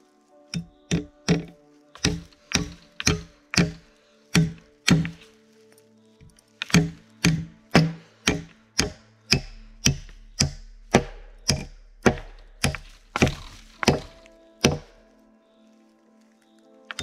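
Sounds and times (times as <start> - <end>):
axe chopping wood: 0.6 - 5.2, 6.6 - 15.0.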